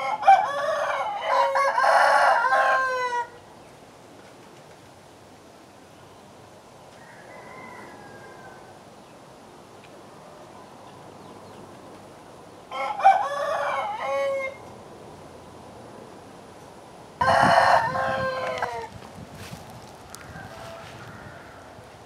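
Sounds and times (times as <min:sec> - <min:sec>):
rooster crowing: 0:00.0 - 0:03.4, 0:07.0 - 0:08.8, 0:12.7 - 0:14.6, 0:17.2 - 0:18.9, 0:20.1 - 0:21.8.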